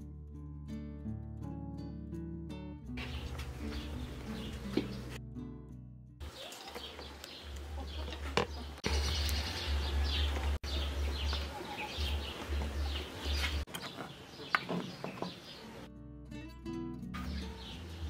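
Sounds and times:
birds chirping: 0:03.0 - 0:05.2, 0:06.2 - 0:15.9, 0:17.2 - 0:18.0.

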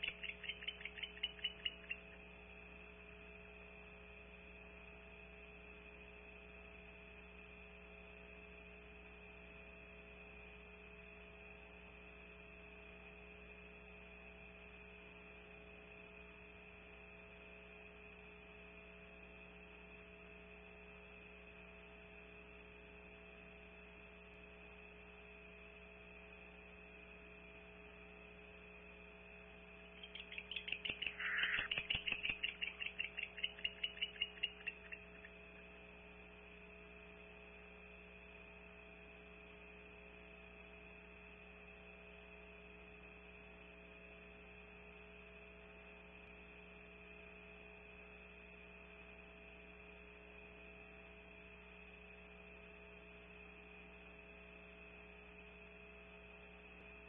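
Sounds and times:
electrical hum: 0:00.0 - 0:07.2, 0:23.2 - 0:41.0.

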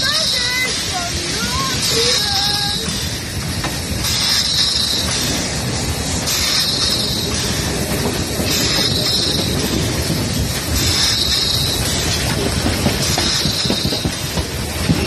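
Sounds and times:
steam hissing: 0:00.0 - 0:15.0
train wheels rumbling on rails: 0:00.0 - 0:15.0.

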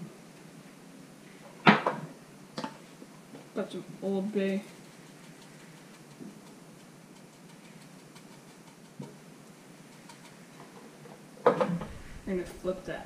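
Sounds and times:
low room hiss: 0:00.0 - 0:13.0
seasoning tin shaken ticks: 0:04.4 - 0:10.5.

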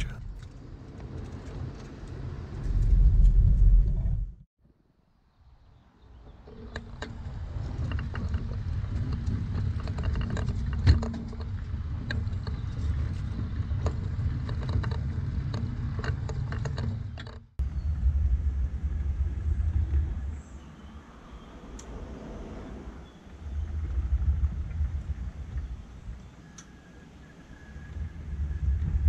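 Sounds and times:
wheels clicking on rails: 0:00.0 - 0:03.6, 0:06.3 - 0:17.5
miniature locomotive rumble: 0:06.2 - 0:20.9.

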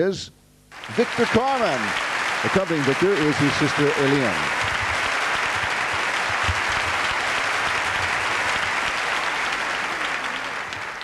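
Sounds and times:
large audience applauding: 0:00.7 - 0:11.0.

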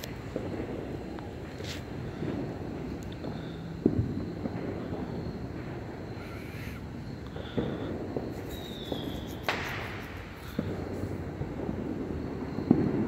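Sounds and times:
distant fireworks bangs: 0:00.0 - 0:13.0
high whistle: 0:08.3 - 0:10.8.

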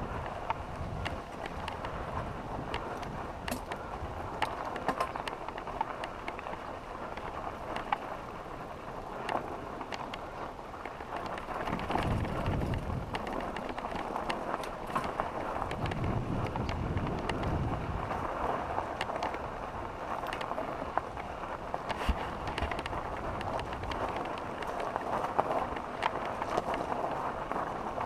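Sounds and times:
bike tyres on gravel: 0:00.0 - 0:28.0
wind rumble on microphone: 0:00.0 - 0:28.0
sharp clicks and rattles: 0:09.2 - 0:28.0.

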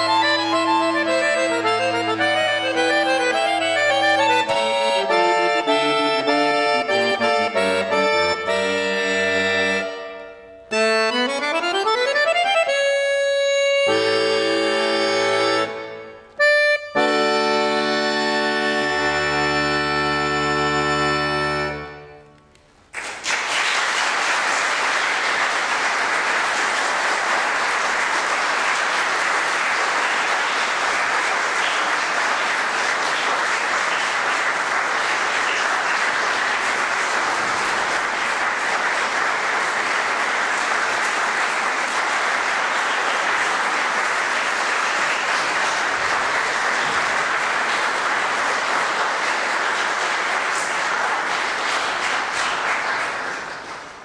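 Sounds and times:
audience applauding: 0:00.0 - 0:09.8, 0:22.6 - 0:54.0
accordion chord ringing: 0:00.0 - 0:22.5.

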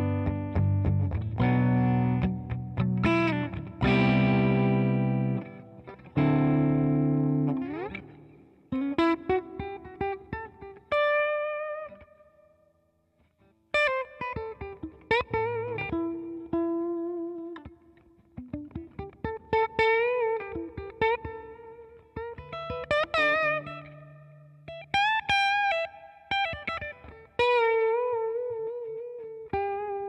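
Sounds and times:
electric guitar strummed chords: 0:00.0 - 0:12.0
electric guitar lead phrases: 0:00.0 - 0:12.6, 0:13.4 - 0:30.0.

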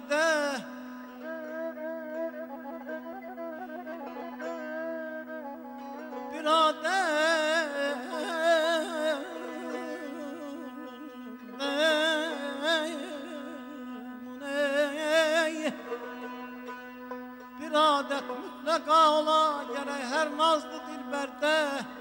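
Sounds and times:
strings holding steady note: 0:00.6 - 0:22.0
person singing melismatic vocalise: 0:06.4 - 0:16.6.

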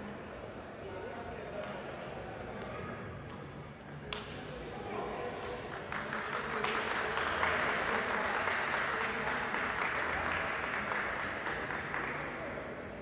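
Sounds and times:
audience applauding: 0:05.8 - 0:12.2.

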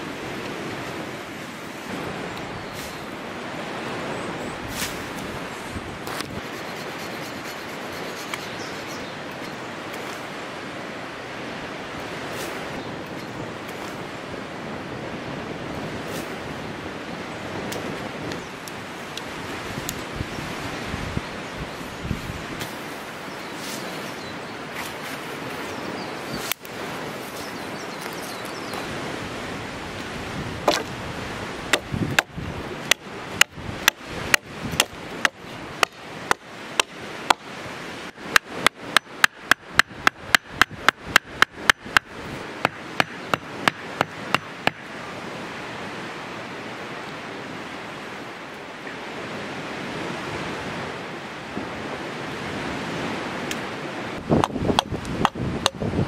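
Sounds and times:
outdoor background rush: 0:00.0 - 0:56.0
hand tool striking: 0:38.3 - 0:44.9.

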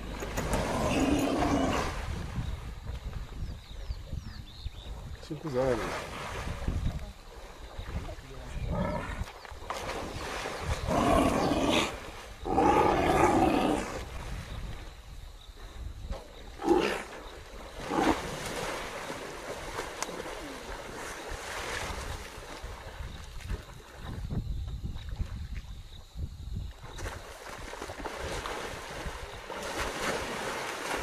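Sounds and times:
big cat snarling: 0:00.5 - 0:02.0, 0:10.8 - 0:14.0, 0:16.6 - 0:17.1
big cat roaring: 0:00.6 - 0:02.0, 0:10.8 - 0:14.0.

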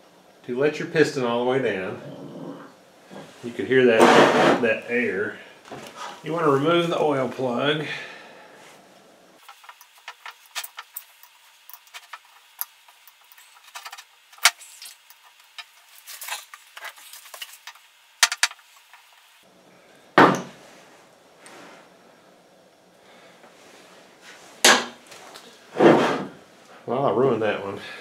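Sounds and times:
metal tools clicking and scraping: 0:09.4 - 0:18.6.

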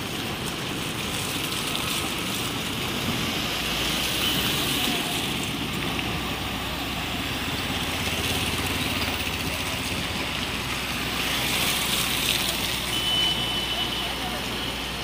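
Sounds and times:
vehicle engines running: 0:00.0 - 0:13.0.

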